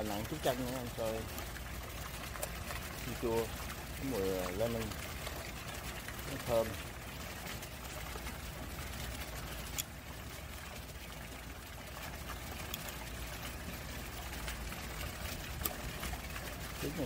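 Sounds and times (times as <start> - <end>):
water trickling in pond: 0.0 - 17.0.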